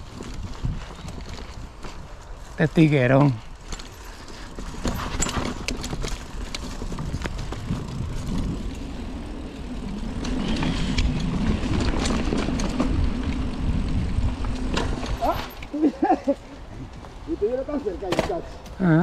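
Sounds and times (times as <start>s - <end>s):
wind and tyre rumble: 0.0s - 19.0s
bike knocks and rattles: 3.1s - 9.2s, 10.0s - 13.5s, 14.3s - 16.1s, 18.0s - 18.7s.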